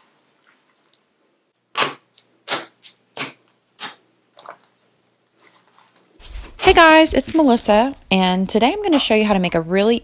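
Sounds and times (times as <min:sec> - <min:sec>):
slime squeezed with wet pops: 0:01.8 - 0:04.7.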